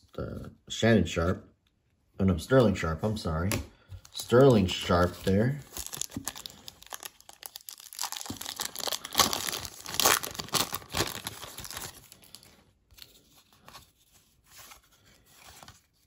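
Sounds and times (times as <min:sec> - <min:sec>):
card pack wrapper tearing: 0:04.2 - 0:12.6.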